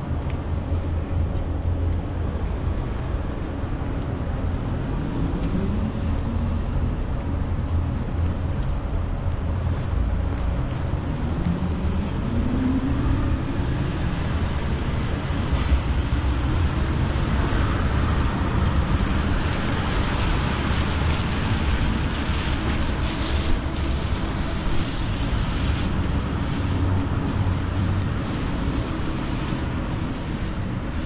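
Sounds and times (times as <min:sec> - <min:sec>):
deep low rumble: 0:00.0 - 0:22.4
wind on microphone: 0:00.0 - 0:31.0
steady rain: 0:01.6 - 0:31.0.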